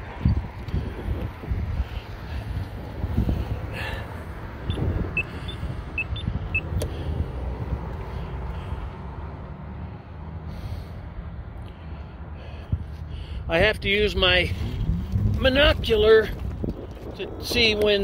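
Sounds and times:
wind buffeting microphone: 0:00.0 - 0:09.3, 0:12.6 - 0:18.0.

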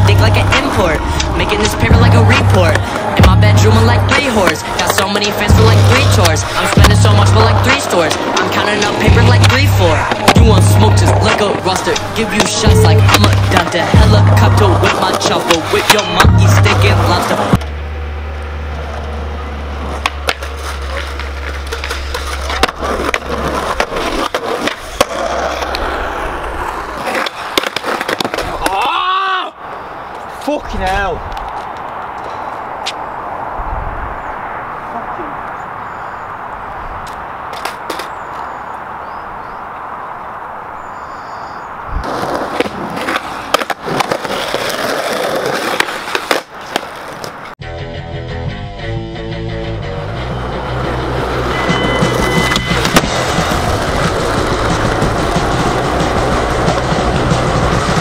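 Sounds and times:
skateboard clacking on ground: 0:00.0 - 0:17.8, 0:18.7 - 0:29.0, 0:37.0 - 0:38.5, 0:42.0 - 0:47.6, 0:50.7 - 0:58.0
skateboard wheels rolling: 0:00.0 - 0:47.6, 0:49.6 - 0:58.0.

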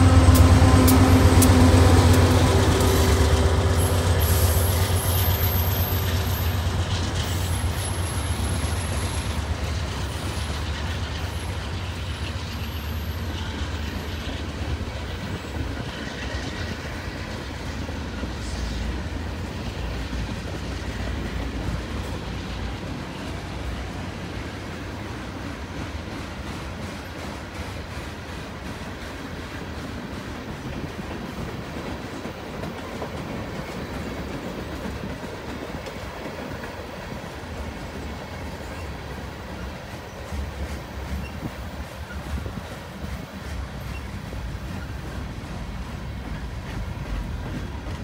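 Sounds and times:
locomotive engine drone: 0:00.0 - 0:25.8
freight cars rolling by: 0:00.0 - 0:48.0.

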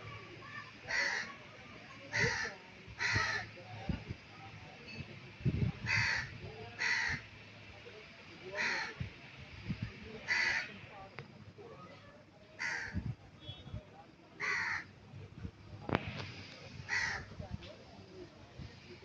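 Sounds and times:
crows cawing: 0:00.9 - 0:01.4, 0:02.1 - 0:03.5, 0:05.9 - 0:07.2, 0:08.6 - 0:09.0, 0:10.2 - 0:10.8, 0:12.6 - 0:13.0, 0:14.4 - 0:14.9, 0:16.9 - 0:17.3.

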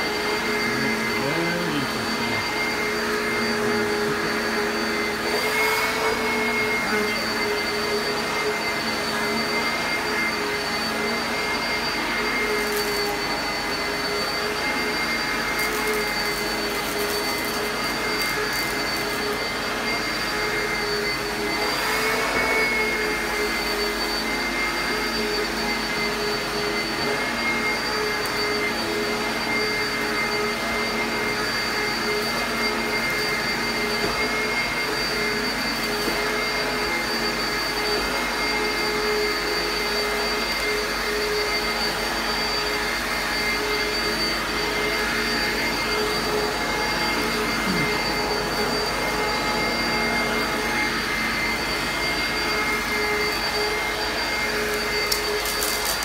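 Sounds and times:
vacuum cleaner running on carpet: 0:00.0 - 0:56.0.

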